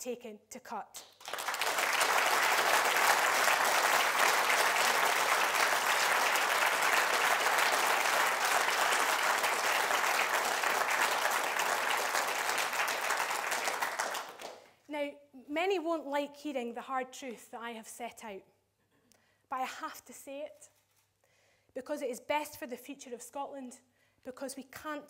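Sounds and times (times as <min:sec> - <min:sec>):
audience applauding: 0:01.2 - 0:14.7.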